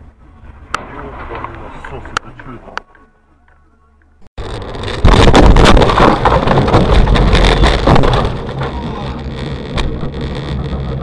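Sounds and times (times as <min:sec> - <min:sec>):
car crashing: 0:04.4 - 0:11.0
car driving noise: 0:04.4 - 0:11.0
windshield breaking: 0:04.5 - 0:10.9.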